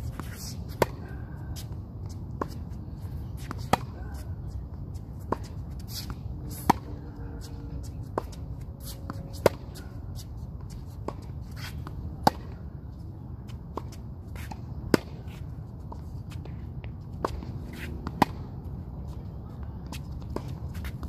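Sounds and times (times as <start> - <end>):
tennis balls struck by racquets: 0.0 - 1.7, 2.3 - 4.3, 5.2 - 10.0, 11.0 - 12.7, 13.5 - 15.4, 16.3 - 19.0.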